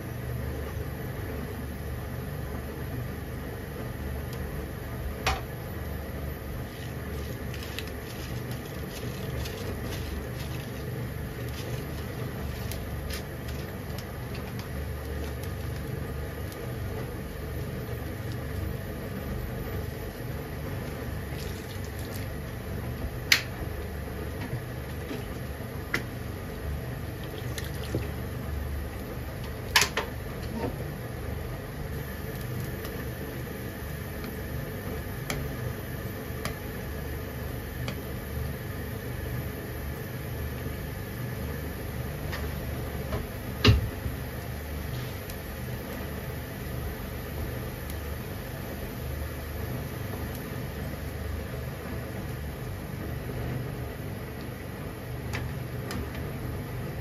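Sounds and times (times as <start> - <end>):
water bubbling in a frying pan: 6.1 - 38.8.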